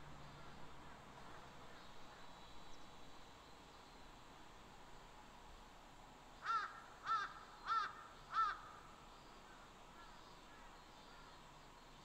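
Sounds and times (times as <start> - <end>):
soft forest ambience hiss: 0.0 - 12.0
crow cawing: 6.4 - 8.8.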